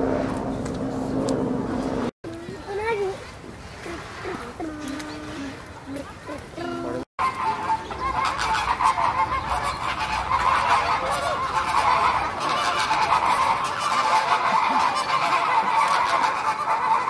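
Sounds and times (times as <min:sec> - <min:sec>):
waterfowl honking and calling: 0:07.2 - 0:17.0.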